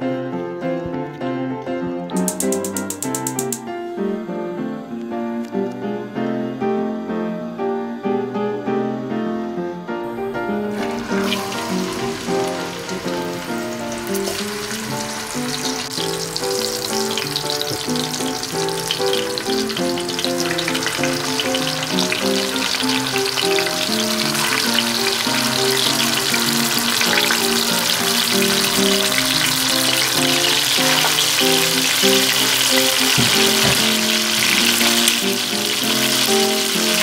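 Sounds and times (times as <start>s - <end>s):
gentle guitar music: 0.0s - 7.2s, 10.0s - 37.0s
poultry sizzling in hot oil: 10.1s - 37.0s.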